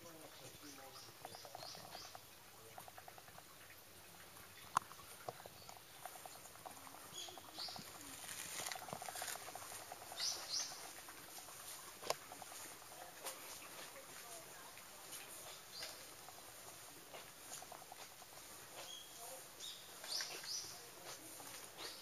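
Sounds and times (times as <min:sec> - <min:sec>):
bird chirps: 0:00.4 - 0:02.4, 0:06.7 - 0:08.4, 0:09.9 - 0:11.0, 0:18.7 - 0:20.9.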